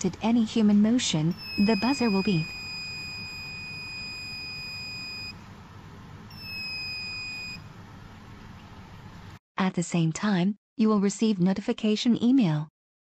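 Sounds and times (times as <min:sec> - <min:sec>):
high-pitched alarm buzzer: 0:01.3 - 0:05.4, 0:06.3 - 0:07.6.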